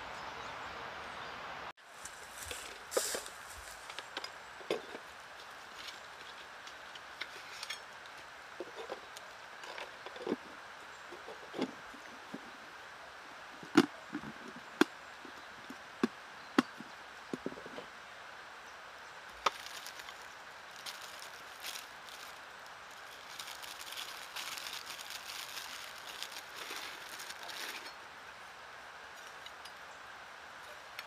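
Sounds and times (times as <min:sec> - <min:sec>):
branches rustling and crackling: 0:01.8 - 0:31.0
dry wood cracking: 0:19.3 - 0:27.9.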